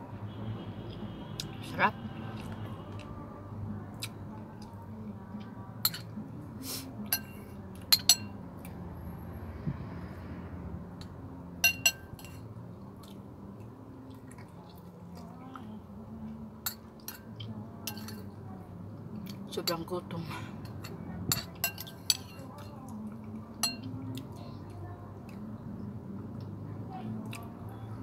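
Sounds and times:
low steady hum: 0.0 - 28.0
spoon clinking on metal plate: 5.8 - 6.1, 7.1 - 8.4, 11.6 - 12.4, 16.6 - 18.3, 20.6 - 22.6, 23.6 - 23.9
quiet chewing: 12.9 - 15.7.

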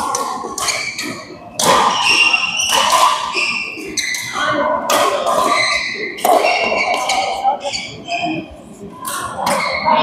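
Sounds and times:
racket hitting shuttlecock: 0.0 - 7.4
shoes squeaking on court: 0.2 - 8.5, 9.1 - 10.0.

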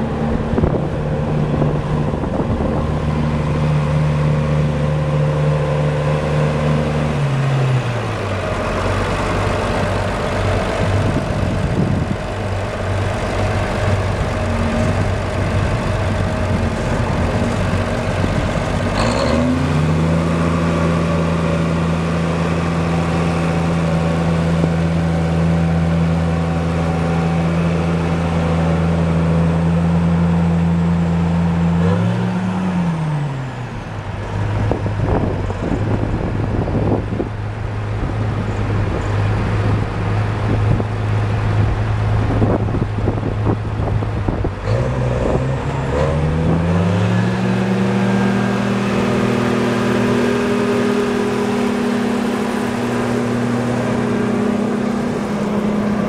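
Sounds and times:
tractor diesel engine running: 0.0 - 31.9, 32.6 - 56.0.

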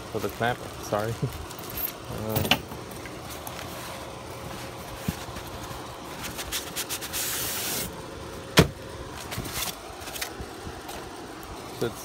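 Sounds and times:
cardboard packaging rustling: 3.0 - 7.9.

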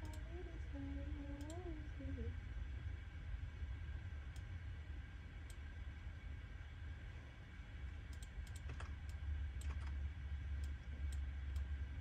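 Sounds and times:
low hum: 0.0 - 12.0
computer keyboard typing: 8.2 - 10.0.

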